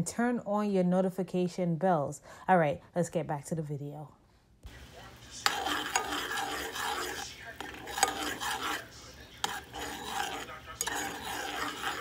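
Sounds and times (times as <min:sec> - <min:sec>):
spoon scraping a saucepan: 0:04.7 - 0:12.0.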